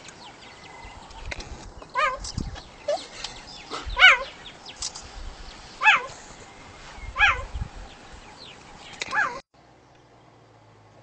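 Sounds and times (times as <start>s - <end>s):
cheetah chirping: 1.9s - 4.9s, 5.5s - 9.4s.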